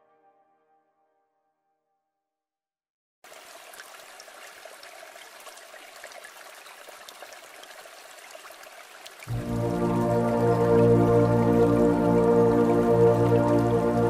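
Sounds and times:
stream babbling: 3.3s - 14.0s.

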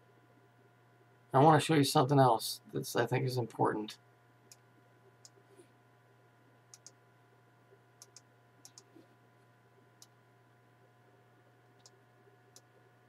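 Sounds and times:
low electrical hum: 0.0s - 13.0s
computer mouse clicks: 6.7s - 7.0s, 8.0s - 9.1s, 11.8s - 12.7s.

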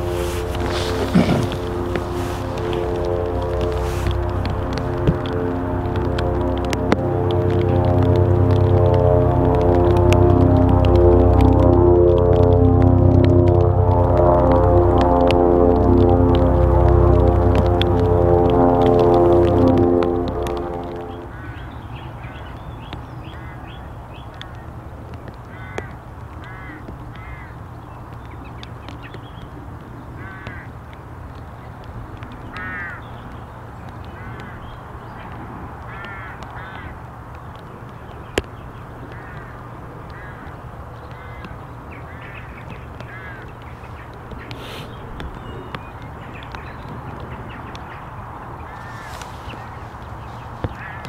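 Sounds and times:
birds harsh calls: 0.0s - 5.4s, 20.9s - 30.8s, 31.6s - 51.0s
music track: 0.0s - 22.3s
steady low rumble: 0.0s - 51.0s.

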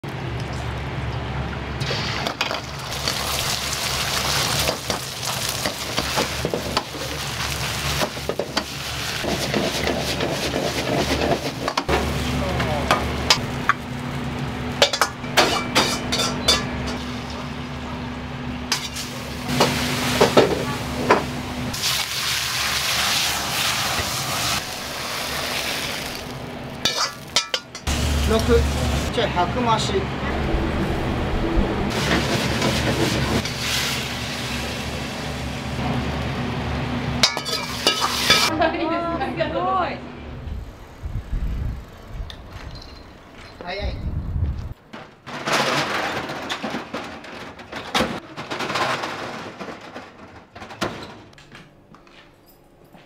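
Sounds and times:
rice sizzling in a wok: 1.8s - 12.4s, 18.8s - 29.1s, 31.9s - 35.8s, 37.4s - 38.5s
steady low hum: 26.3s - 32.6s.

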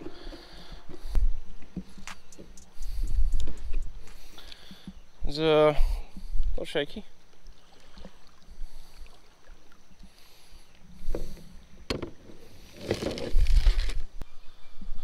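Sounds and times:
kayak rustling and handling: 0.0s - 14.2s.

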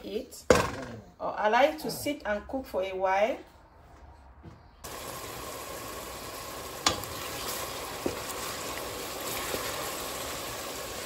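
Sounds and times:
onion and tomatoes sizzling: 4.8s - 11.0s.

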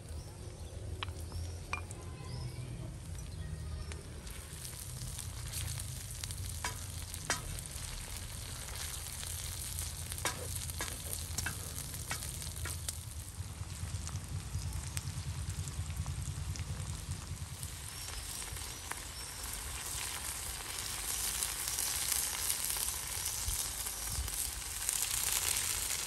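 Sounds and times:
food sizzling in hot oil: 3.8s - 14.1s, 17.0s - 26.0s
wooden spatula stirring: 6.6s - 12.8s.

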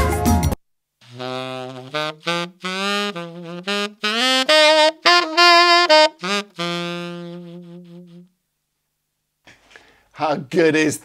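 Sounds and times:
tenor saxophone blues lick: 1.0s - 8.4s.

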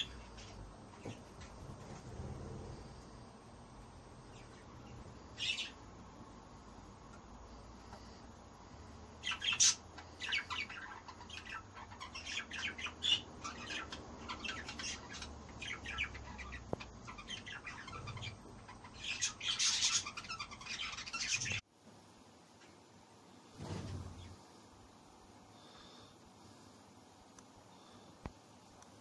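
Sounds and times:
birds chirping: 0.0s - 21.6s.

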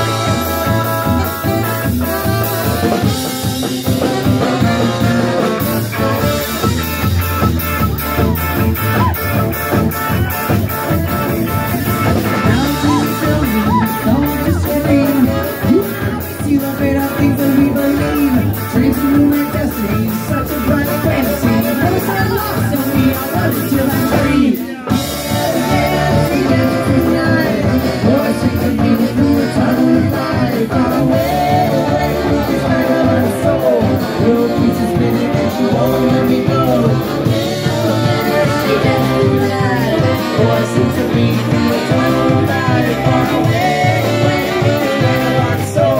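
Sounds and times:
live band playing: 0.0s - 45.9s
woman singing: 12.4s - 45.9s.

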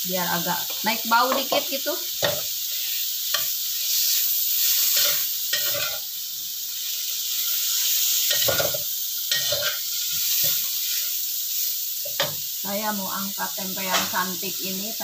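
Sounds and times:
meat sizzling in oil: 0.0s - 15.0s
metal spatula scraping wok: 0.6s - 6.1s, 8.3s - 11.2s.

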